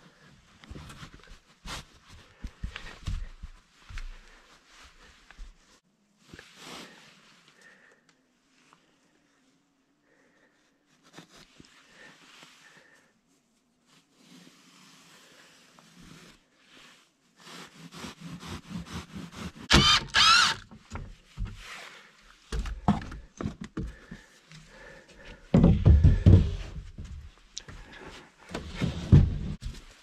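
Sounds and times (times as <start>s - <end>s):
knife sawing through insulation: 17.5s - 20.6s
knocks and thuds on wood: 22.5s - 24.2s, 25.5s - 27.3s.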